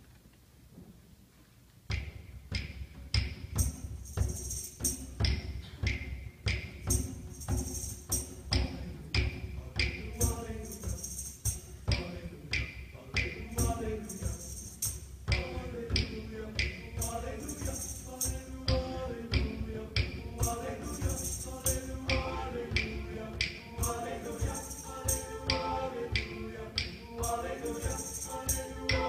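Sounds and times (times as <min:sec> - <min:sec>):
tambourine jingle: 0:03.2 - 0:29.0
choir singing: 0:09.6 - 0:29.0.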